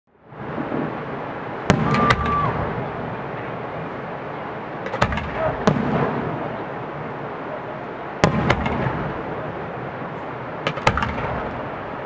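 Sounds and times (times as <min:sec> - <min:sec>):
background noise: 0:00.1 - 0:12.0
fireworks crackling pops: 0:01.6 - 0:02.7, 0:04.8 - 0:06.3, 0:08.2 - 0:09.2, 0:10.6 - 0:11.8
fireworks bangs: 0:01.6 - 0:02.9, 0:04.8 - 0:06.6, 0:08.2 - 0:09.3, 0:10.6 - 0:11.8.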